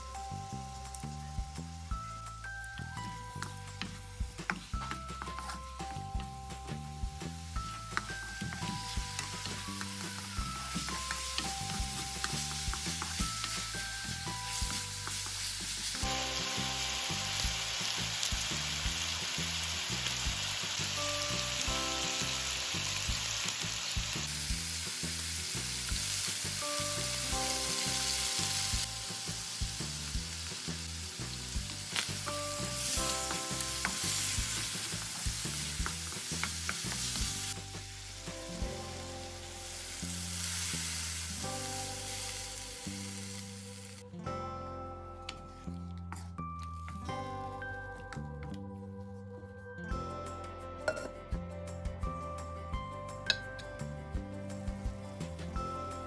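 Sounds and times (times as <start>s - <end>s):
pork sizzling in hot oil: 0.0s - 44.1s
wooden spatula scraping a wok: 33.2s - 37.8s.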